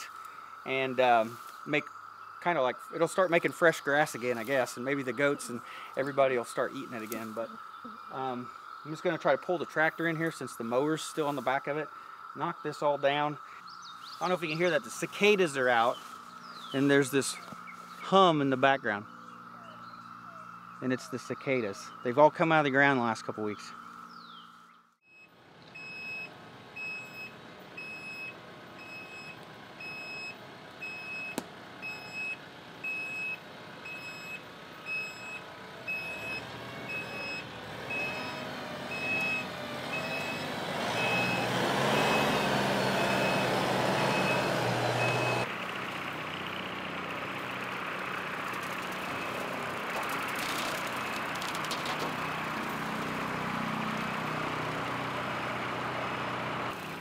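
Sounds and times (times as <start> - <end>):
tractor engine running: 0.0 - 24.4, 25.5 - 57.0
reverse alarm beeping: 25.0 - 45.5
rotary mower cutting grass: 34.1 - 57.0.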